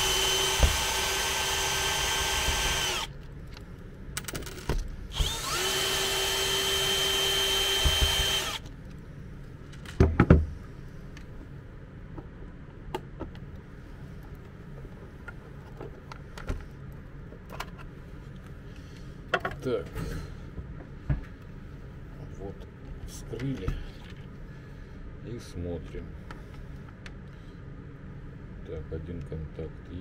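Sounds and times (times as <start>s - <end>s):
cordless drill whining: 0.0s - 3.1s, 5.1s - 8.7s.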